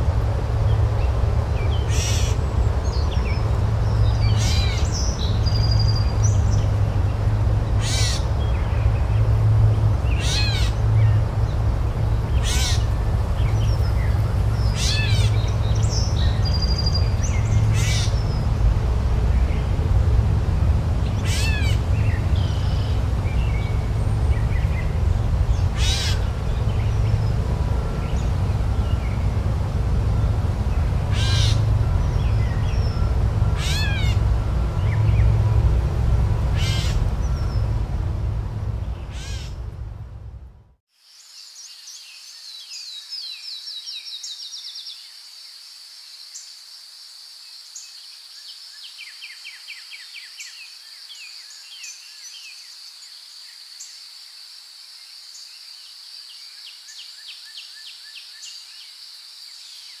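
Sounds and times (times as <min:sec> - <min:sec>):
bird calls: 0:01.7 - 0:06.7, 0:07.7 - 0:08.8, 0:10.1 - 0:11.1, 0:12.3 - 0:18.5, 0:21.1 - 0:27.4, 0:30.6 - 0:35.5, 0:36.5 - 0:37.8, 0:38.8 - 0:39.7
loud low rumble: 0:08.4 - 0:40.8.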